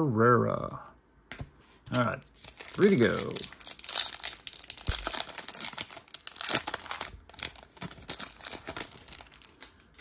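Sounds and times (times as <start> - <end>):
plastic wrapper crinkling and tearing: 2.2 - 10.0.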